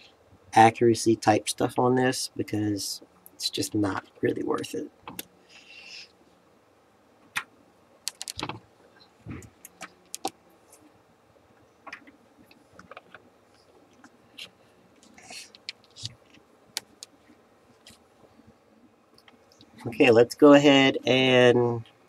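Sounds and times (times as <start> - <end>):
cables rustling: 8.1 - 20.2.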